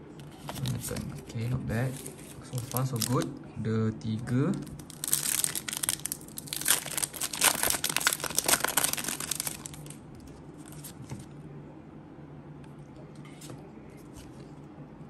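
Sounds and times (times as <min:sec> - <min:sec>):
foil wrapper crinkling and tearing: 0:02.0 - 0:03.3, 0:04.6 - 0:10.0.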